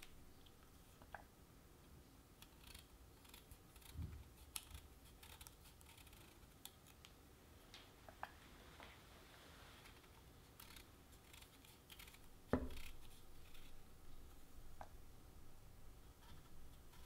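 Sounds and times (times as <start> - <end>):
knife scraping chestnut: 2.4 - 6.5, 10.5 - 13.8.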